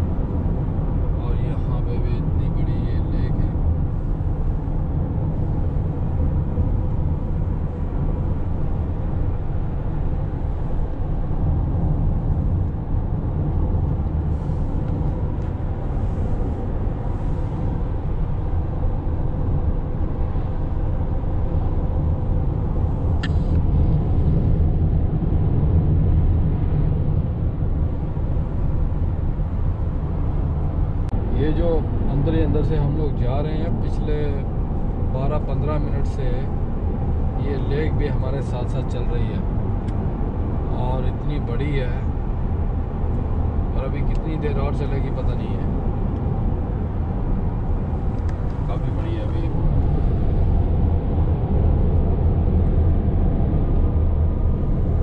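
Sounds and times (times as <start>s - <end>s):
car road and engine rumble: 0.0s - 55.0s
short click: 23.2s - 23.5s.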